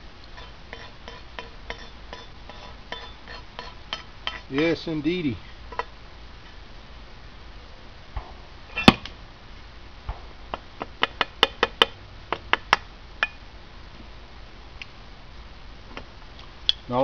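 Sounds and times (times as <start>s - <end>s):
hand tool tapping on metal: 0.4s - 4.8s.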